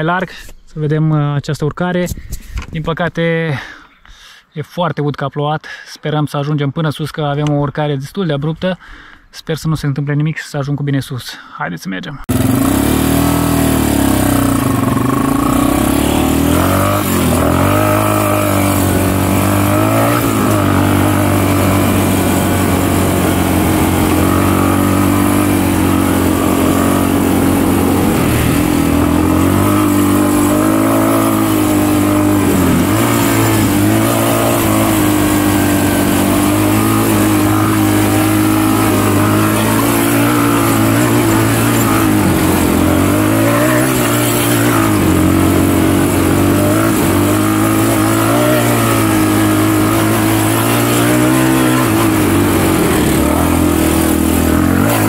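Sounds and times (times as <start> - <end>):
atv engine pulling hard: 12.3 - 55.0.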